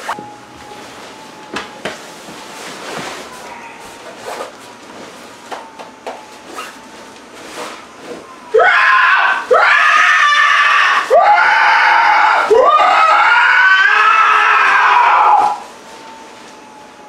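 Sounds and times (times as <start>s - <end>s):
man screaming: 8.6s - 15.6s.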